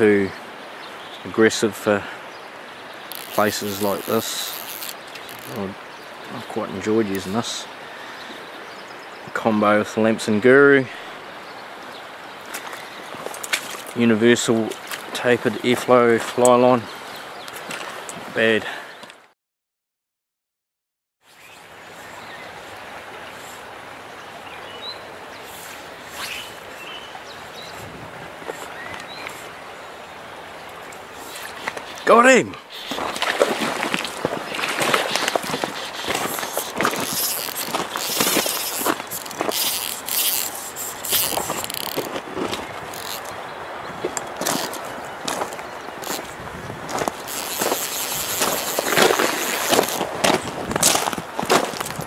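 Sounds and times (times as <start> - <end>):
stream running: 0.0 - 19.2, 21.3 - 52.0
fishing reel clicking: 3.1 - 5.6, 35.8 - 42.1, 47.2 - 50.0
line scraping: 3.1 - 5.8, 25.5 - 26.9, 30.9 - 51.0
water splashing: 3.1 - 5.8, 28.4 - 52.0.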